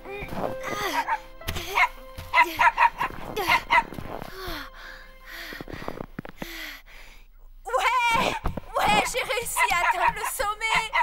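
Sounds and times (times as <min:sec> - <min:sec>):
background music: 0:00.0 - 0:06.4
small dog barking: 0:08.9 - 0:11.0.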